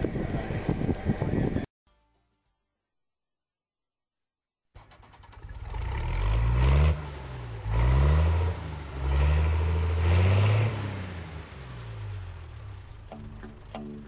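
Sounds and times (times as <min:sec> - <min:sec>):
engine revving: 0:04.8 - 0:14.0.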